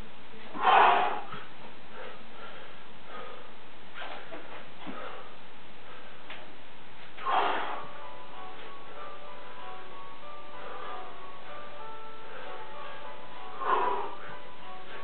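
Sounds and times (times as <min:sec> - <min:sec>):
man breathing heavily: 0:00.5 - 0:15.0
chiming tones: 0:07.8 - 0:15.0.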